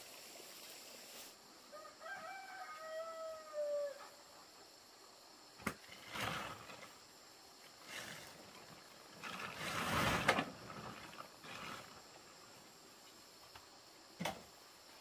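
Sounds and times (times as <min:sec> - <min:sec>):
rooster crowing: 0:01.7 - 0:04.2
plastic tarp rustling: 0:05.9 - 0:06.9, 0:07.8 - 0:12.2.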